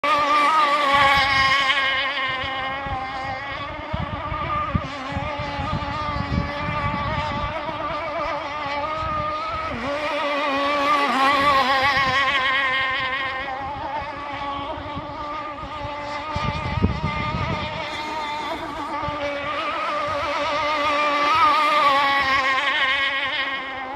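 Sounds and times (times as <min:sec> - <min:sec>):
model boat motor whining: 0:00.0 - 0:23.9
gusty low rumble: 0:12.8 - 0:20.9.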